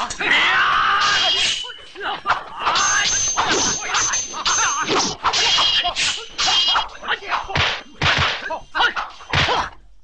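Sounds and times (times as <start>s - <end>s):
clashing metal weapons: 0.0s - 9.8s
fight whacks and swishes: 4.8s - 9.7s.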